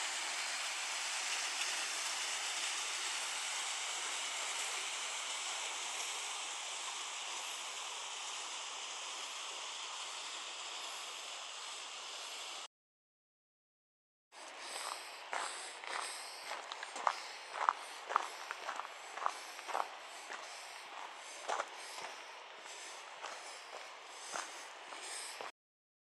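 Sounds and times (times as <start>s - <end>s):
stream running over rocks: 0.0s - 12.3s.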